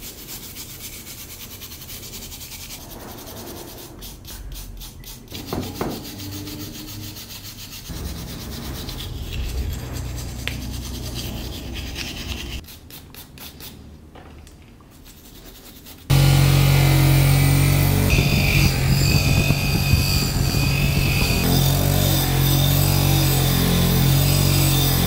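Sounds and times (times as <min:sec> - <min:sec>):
wire brush scrubbing rusty metal: 0:00.0 - 0:13.7.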